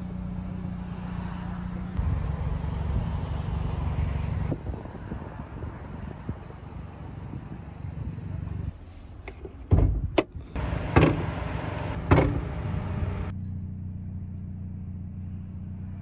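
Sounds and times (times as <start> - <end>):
car engine idling: 10.2 - 13.3.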